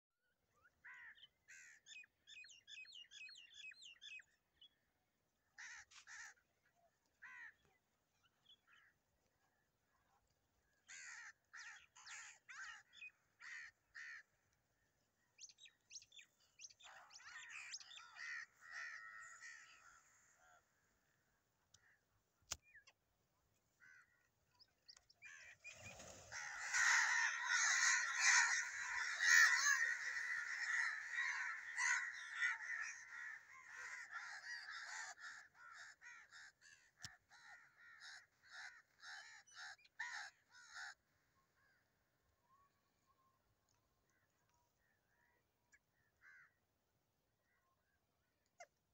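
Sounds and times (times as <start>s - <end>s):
crows cawing: 0.8s - 1.9s, 5.6s - 6.4s, 7.2s - 7.7s, 10.8s - 14.4s, 17.1s - 20.8s, 23.8s - 24.3s, 26.2s - 41.0s, 46.2s - 46.6s.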